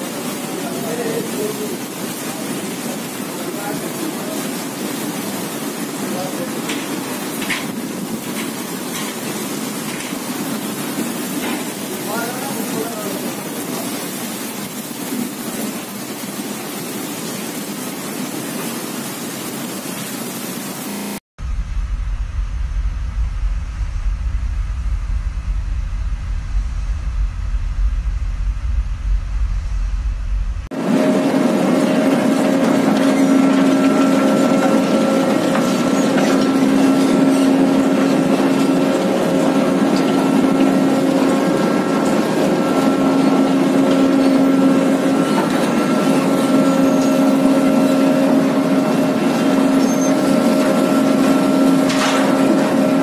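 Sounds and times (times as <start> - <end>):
hiss of machinery and coal: 0.0 - 53.0
ship unloader machinery drone: 20.8 - 53.0
wind rumble on microphone: 21.4 - 30.7.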